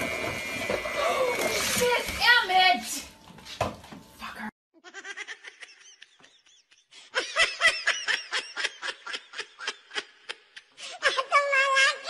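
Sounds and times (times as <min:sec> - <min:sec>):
person laughing hard: 0:04.8 - 0:11.3.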